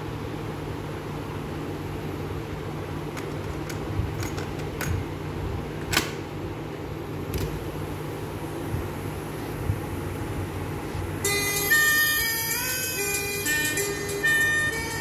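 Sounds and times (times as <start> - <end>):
cassette deck plastic clicks: 5.8 - 6.2.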